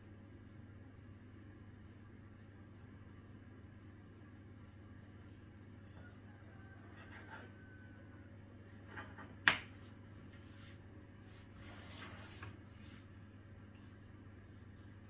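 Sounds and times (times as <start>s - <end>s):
knife scraping through dough: 6.8s - 7.8s, 8.8s - 9.4s
knife knocking on wooden board: 9.0s - 9.7s
board sliding on tablecloth: 10.4s - 12.6s.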